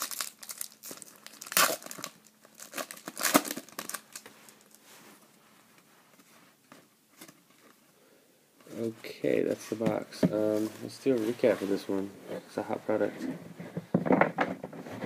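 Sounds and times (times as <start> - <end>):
foil wrapper crinkling: 0.0 - 4.8.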